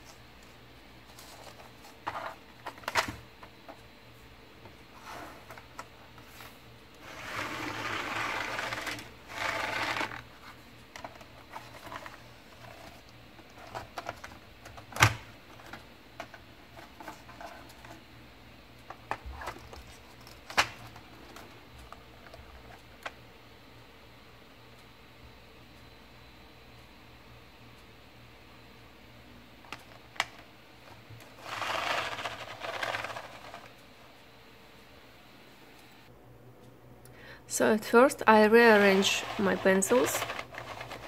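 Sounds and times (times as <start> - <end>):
rustling handling: 31.2 - 33.8, 38.7 - 41.0
pencils clicking against tin: 38.8 - 41.0.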